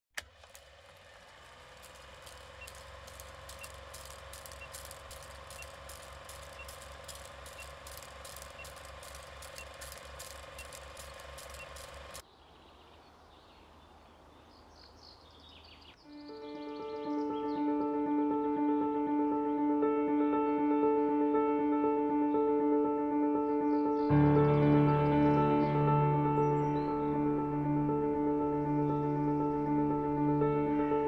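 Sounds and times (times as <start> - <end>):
film projector rattling: 0.2 - 12.2.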